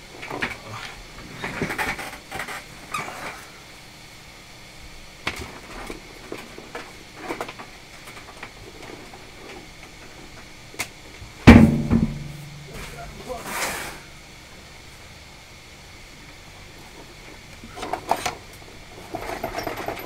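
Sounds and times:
loud sharp knock: 0:11.5 - 0:12.6.

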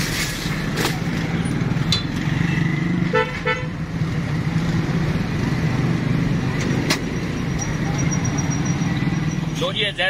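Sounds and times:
street traffic: 0:00.0 - 0:10.0
vehicle horn toots: 0:03.1 - 0:03.7.

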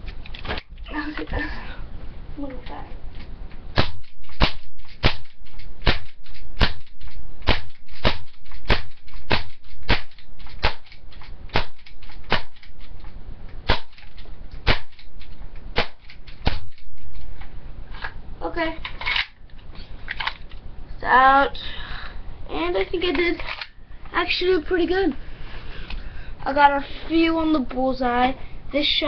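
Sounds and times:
airsoft pistol shots: 0:03.7 - 0:12.8, 0:13.6 - 0:16.9.

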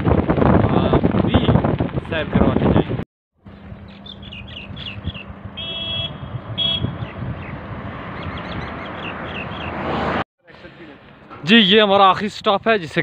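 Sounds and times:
outdoor background rush: 0:00.0 - 0:13.0
small birds chirping: 0:03.5 - 0:07.6, 0:08.2 - 0:09.8.

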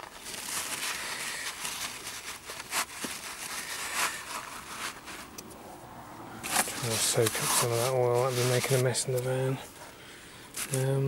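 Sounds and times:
paper towel rustling: 0:00.0 - 0:05.3, 0:06.5 - 0:09.3.

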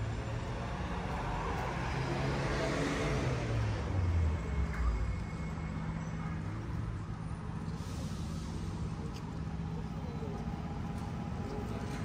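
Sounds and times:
vehicle engine passing: 0:00.0 - 0:04.6
low rumble of traffic: 0:00.0 - 0:12.0.

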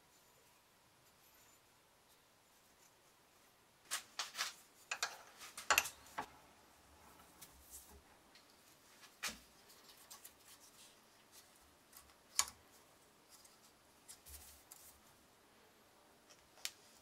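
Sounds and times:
hand tools tapping on metal: 0:04.9 - 0:06.3.

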